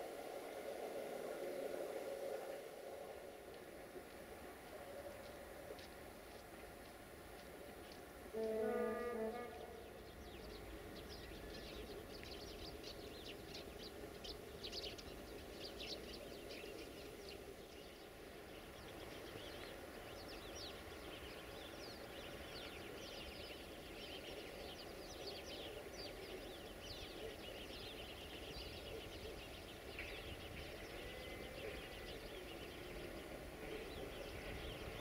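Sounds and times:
small birds chirping: 9.6s - 35.0s.

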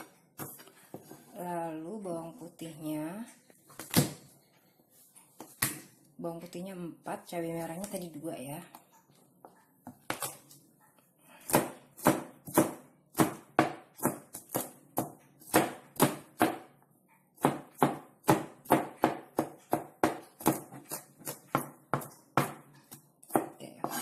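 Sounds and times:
knife chopping on cutting board: 11.4s - 16.7s, 17.4s - 24.0s.

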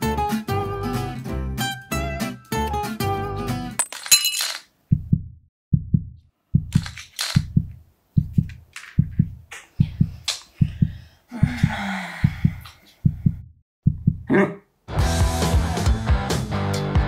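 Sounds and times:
heartbeat double thump: 4.9s - 6.8s, 7.4s - 14.3s.

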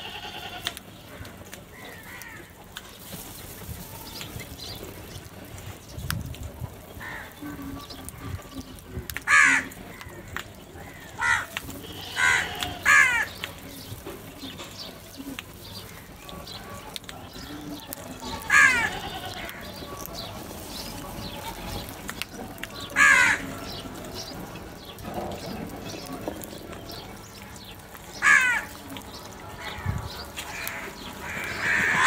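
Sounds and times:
crows cawing: 1.2s - 2.6s, 7.0s - 7.9s, 9.2s - 13.4s, 18.2s - 19.9s, 22.8s - 23.7s, 28.1s - 28.9s, 29.6s - 32.0s.

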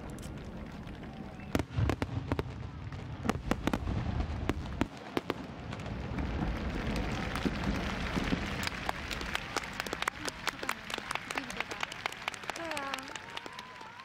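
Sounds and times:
crowd applause: 0.0s - 2.0s, 5.0s - 14.0s
fireworks crackling and popping: 0.0s - 14.0s.

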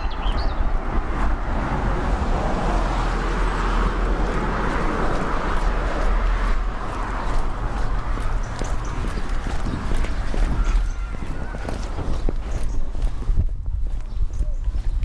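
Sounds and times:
road traffic rumble: 0.0s - 15.0s.

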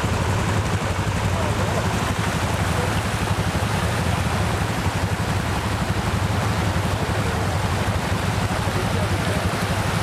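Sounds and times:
constant hiss: 0.0s - 10.0s
quad bike engine running: 0.0s - 10.0s.

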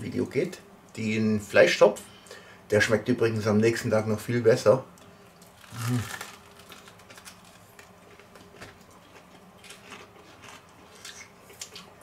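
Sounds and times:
faint low hum: 0.0s - 12.0s
people chewing: 5.4s - 12.0s.

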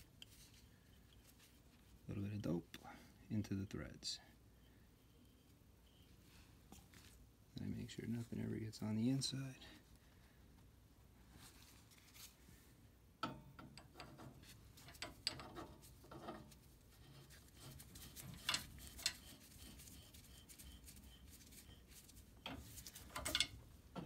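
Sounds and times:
metallic clicks and knocks: 13.2s - 16.5s, 22.4s - 24.0s
metal pipe scraping in fitting: 13.3s - 23.6s.

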